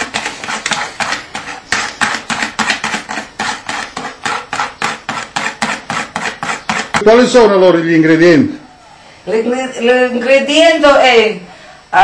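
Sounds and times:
whisk clicking against bowl: 0:00.0 - 0:07.1.

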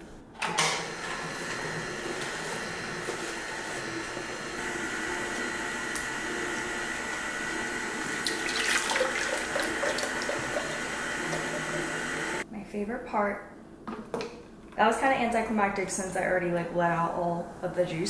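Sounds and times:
juicer motor humming and whining: 0:00.4 - 0:12.4
juice splashing into pitcher: 0:08.1 - 0:12.4.

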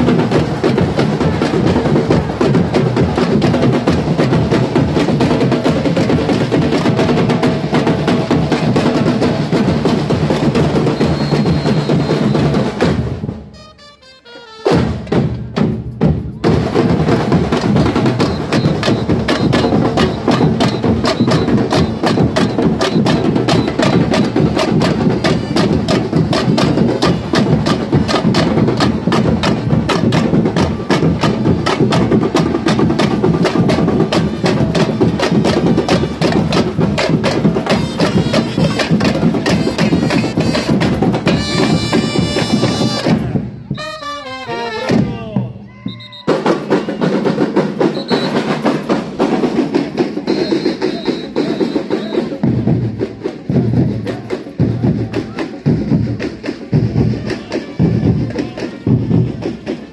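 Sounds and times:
percussion band playing fast beat: 0:00.0 - 0:59.9.

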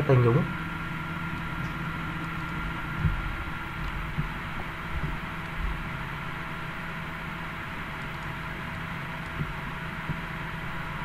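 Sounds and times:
steady low hum: 0:00.0 - 0:11.0
soft low thumps: 0:02.5 - 0:05.9, 0:09.3 - 0:10.3.

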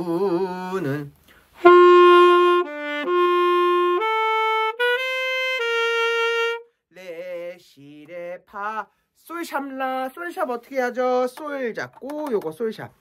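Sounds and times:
alto saxophone melody: 0:00.0 - 0:06.9.

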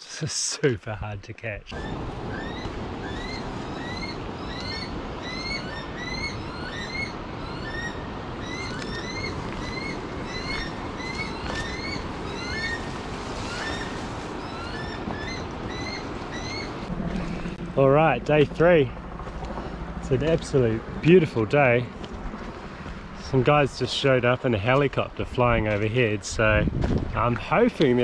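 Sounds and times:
bird shrill whistled calls: 0:01.7 - 0:16.7.

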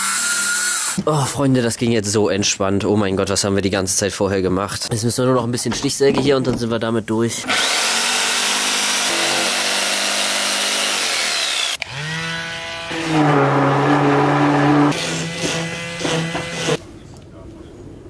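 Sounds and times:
handheld power tool whine: 0:00.0 - 0:01.0, 0:07.5 - 0:16.8
jigsaw sawing through wood: 0:07.4 - 0:16.8.

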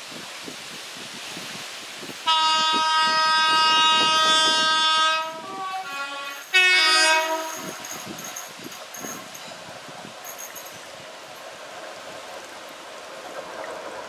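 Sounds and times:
train two-tone horn: 0:02.2 - 0:08.2.

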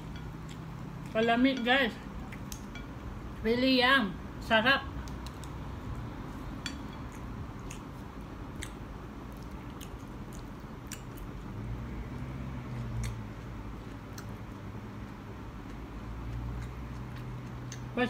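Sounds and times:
person chewing: 0:00.0 - 0:01.3, 0:02.1 - 0:02.9, 0:05.0 - 0:11.5, 0:12.2 - 0:18.0.

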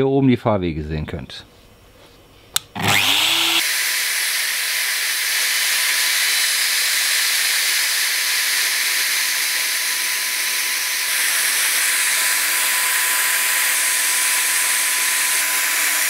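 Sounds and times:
router spindle cutting: 0:02.6 - 0:16.0.

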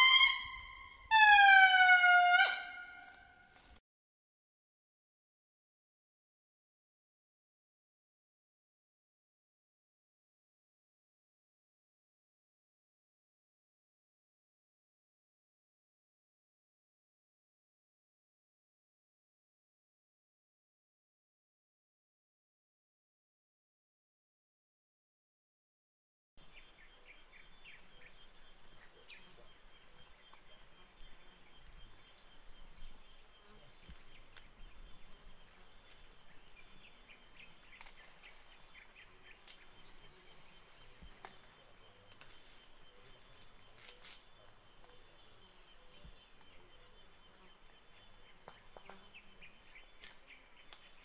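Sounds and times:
bird chirps: 0:26.4 - 0:51.0.

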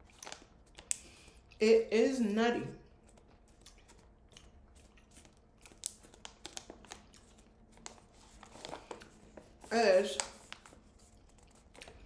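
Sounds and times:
crunchy chewing: 0:03.0 - 0:07.4.

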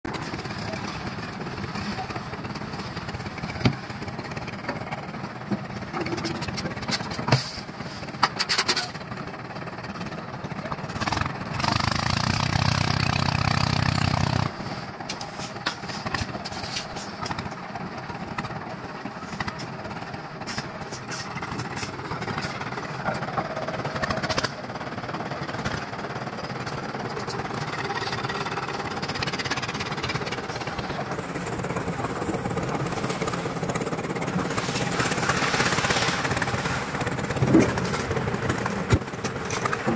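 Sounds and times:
concrete mixer running: 0:20.5 - 0:39.9.

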